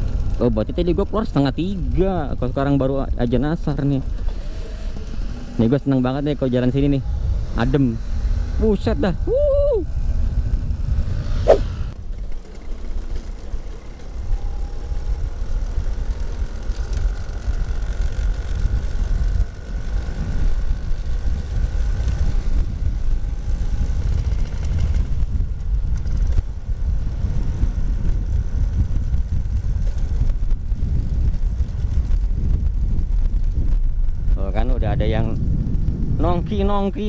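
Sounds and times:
wind on microphone: 6.6 - 12.0, 16.6 - 37.0
swish with falling pitch: 11.1 - 12.0.

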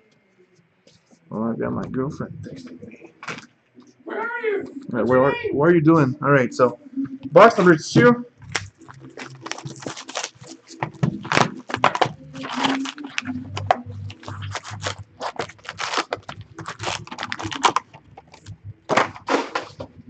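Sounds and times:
plastic shrink wrap crinkling and tearing: 8.4 - 19.9.

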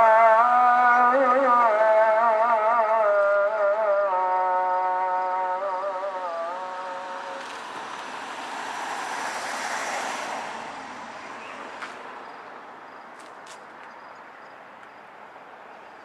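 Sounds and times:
road vehicle passing: 3.8 - 16.0.

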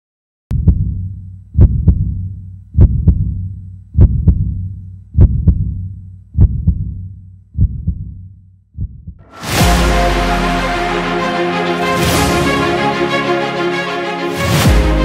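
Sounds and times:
heartbeat thumps: 0.5 - 9.2.

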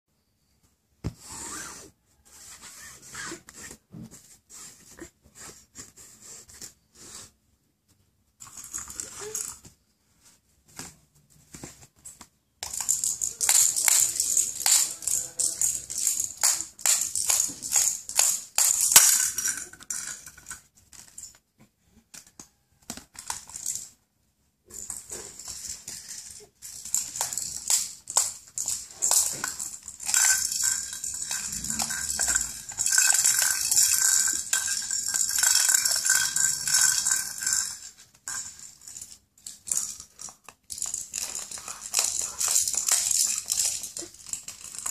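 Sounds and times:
baby rattle shaken on tiles: 8.4 - 9.7, 12.6 - 21.4, 23.2 - 23.9, 24.7 - 44.9.

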